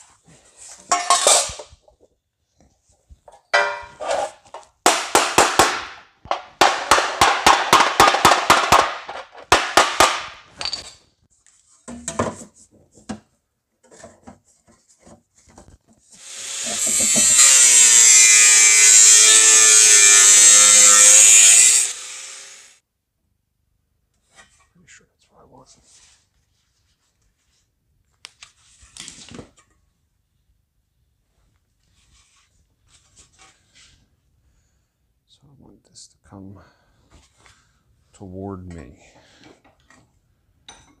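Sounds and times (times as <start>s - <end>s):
hammer on sheet metal: 3.6s - 4.0s, 4.9s - 10.3s
high-pitched power tool running: 16.2s - 22.8s.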